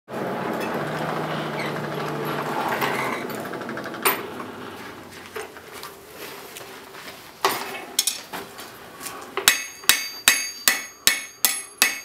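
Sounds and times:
forge blower whirring: 0.1 - 5.3
sharp metallic clink: 9.5 - 12.0.

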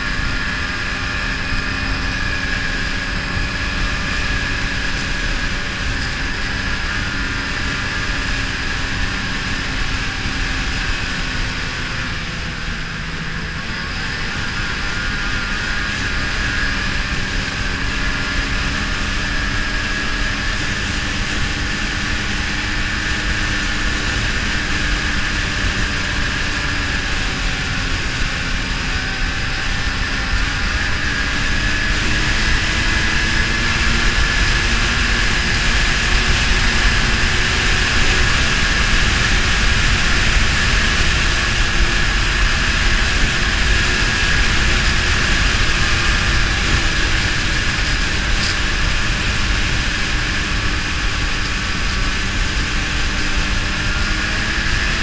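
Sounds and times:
snowmobile engine droning: 0.0 - 55.0.

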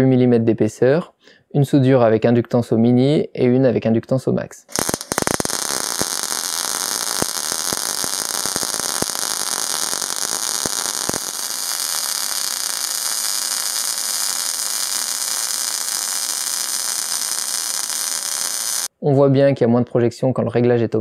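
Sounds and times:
sharp welding pops: 4.7 - 18.9
welding arc crackling hiss: 4.7 - 18.9.

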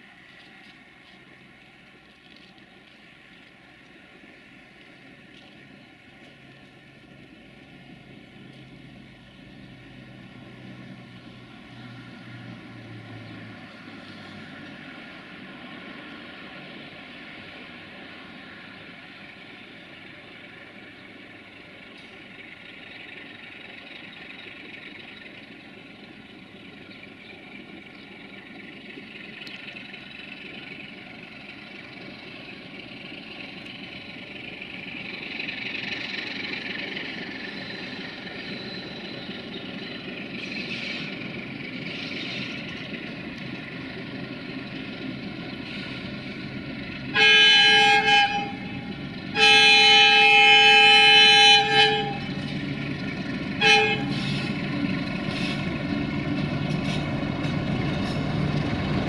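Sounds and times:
diesel locomotive engine: 0.0 - 59.0
train horn blasts: 47.1 - 52.6, 53.5 - 54.6.

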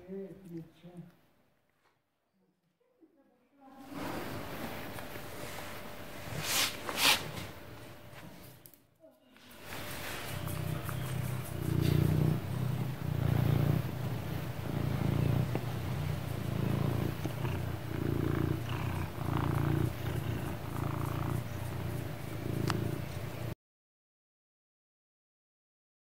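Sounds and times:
cat purring: 9.5 - 23.6.

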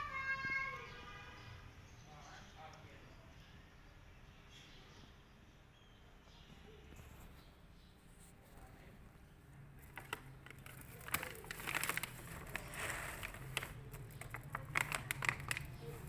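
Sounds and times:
cat crunching dry kibble: 9.8 - 16.0.

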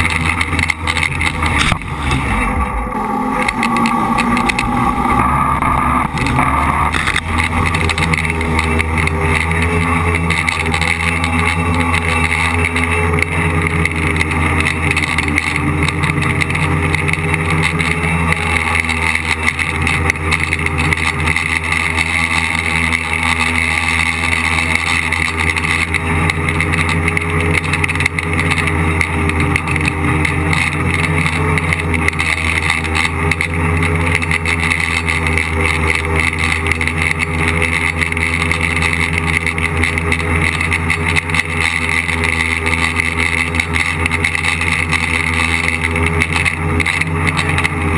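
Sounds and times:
drone motors and propellers buzzing: 0.0 - 47.9.

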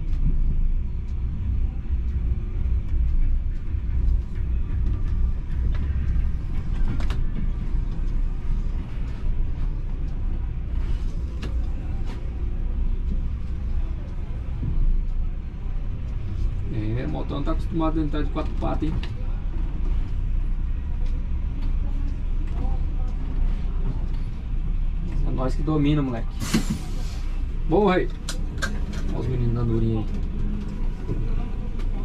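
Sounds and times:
diesel bus engine rumbling: 0.0 - 32.0.

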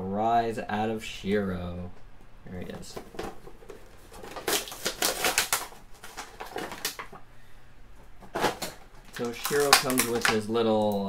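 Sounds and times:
packaging crackling and rustling: 2.7 - 7.3, 8.0 - 11.0.

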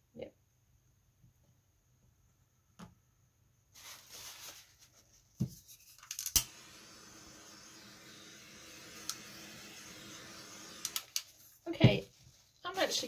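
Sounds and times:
rustling and scraping: 3.7 - 6.2.

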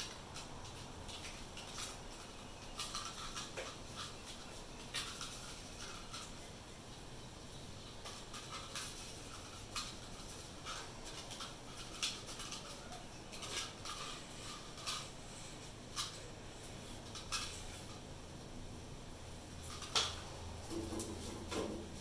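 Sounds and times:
low steady background noise: 0.0 - 22.0.

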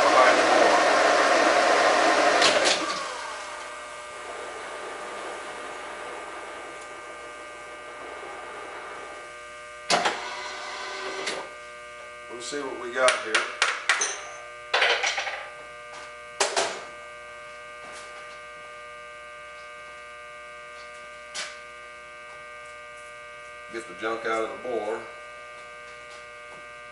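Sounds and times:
boring mill humming: 0.0 - 13.6.

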